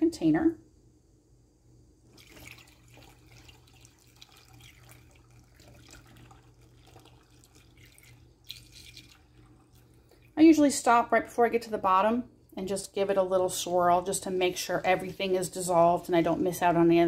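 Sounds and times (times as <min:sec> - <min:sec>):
liquid trickling through funnel: 0:02.1 - 0:10.4.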